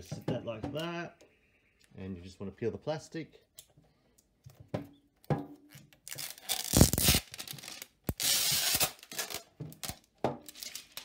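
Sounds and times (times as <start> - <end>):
plastic film tearing: 6.0 - 11.0.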